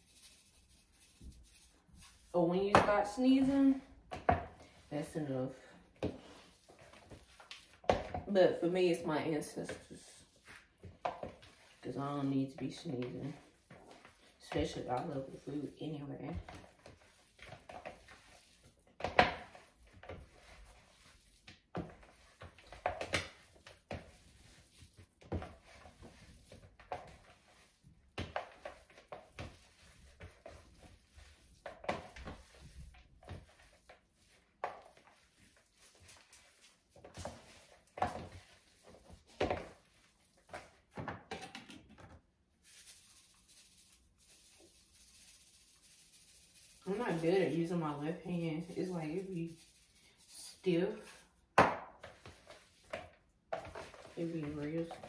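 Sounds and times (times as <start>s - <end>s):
hands squishing meat in a bowl: 0.0s - 41.3s.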